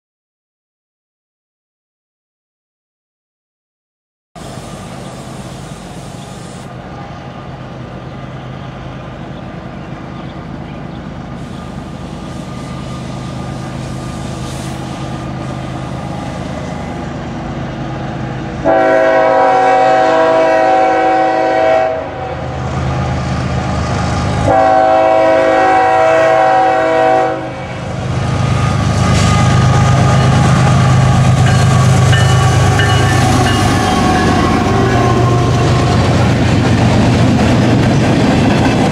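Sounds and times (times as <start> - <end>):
locomotive diesel engine rumbling: 4.4 - 19.8, 22.2 - 38.9
train air horn blasts: 18.6 - 22.6, 24.4 - 36.1
wheels on rails: 28.2 - 38.9.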